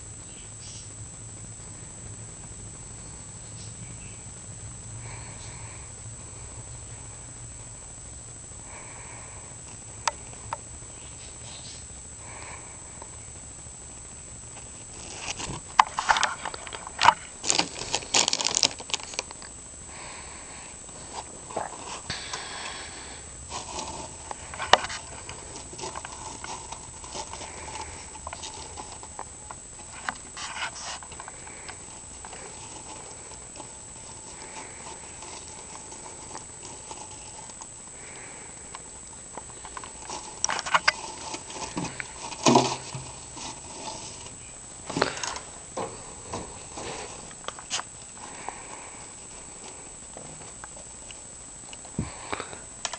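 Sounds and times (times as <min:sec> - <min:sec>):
hamster rustling and clicking: 0:39.4 - 0:44.4.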